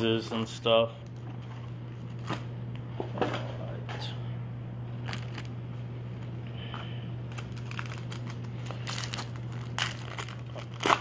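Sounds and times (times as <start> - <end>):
steady low hum: 0.0 - 11.0
foil wrapper crinkling and tearing: 5.0 - 5.5, 7.3 - 11.0.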